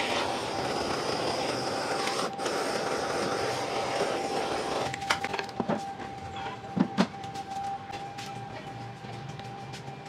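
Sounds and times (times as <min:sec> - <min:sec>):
gas torch flame hissing: 0:00.0 - 0:05.2.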